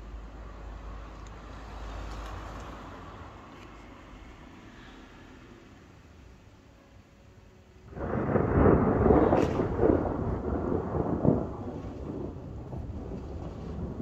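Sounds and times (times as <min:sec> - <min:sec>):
thunder rumbling and cracking: 0:07.9 - 0:14.0.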